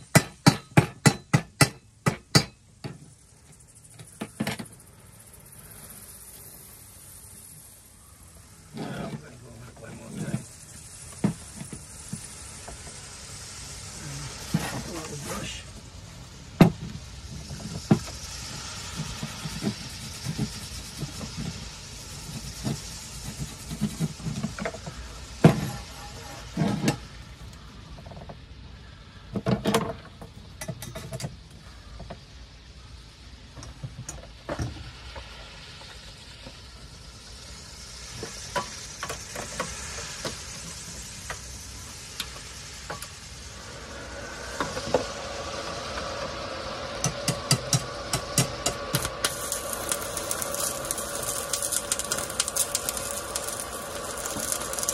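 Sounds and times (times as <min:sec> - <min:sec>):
steady hum: 0:40.6 - 0:54.9
metal tubes knocking and clanking: 0:47.1 - 0:54.9.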